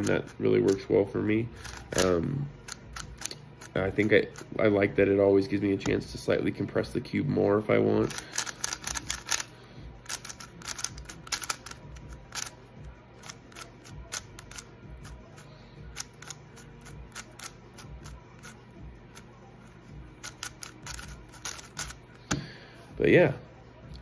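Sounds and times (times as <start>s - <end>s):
plastic puzzle cube clicking: 1.6s - 3.7s, 8.1s - 12.5s, 13.2s - 15.2s, 16.0s - 19.2s, 20.2s - 22.0s.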